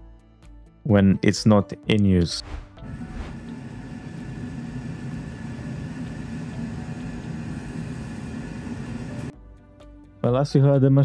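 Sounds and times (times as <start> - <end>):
air fryer fan whirring hum: 2.8 - 9.3.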